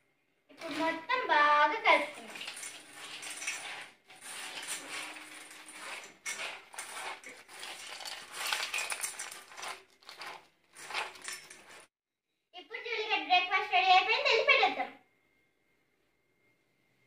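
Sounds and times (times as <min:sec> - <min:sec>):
dry kibble rattling in metal bowl: 0:01.8 - 0:11.9.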